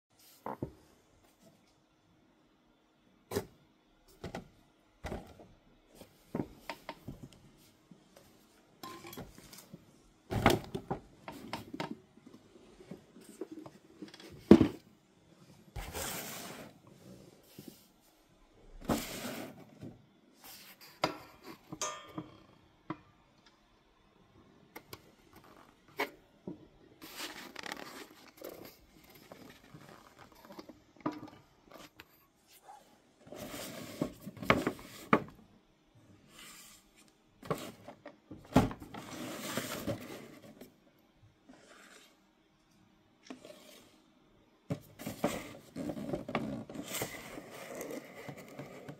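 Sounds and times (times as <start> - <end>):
rustling and scraping: 6.0 - 21.7, 27.0 - 35.2, 38.8 - 40.7, 41.5 - 42.3, 44.7 - 48.9.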